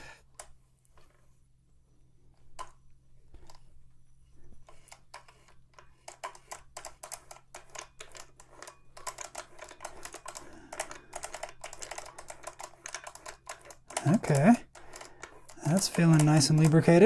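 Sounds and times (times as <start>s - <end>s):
sewing machine gears clicking: 4.6s - 17.0s.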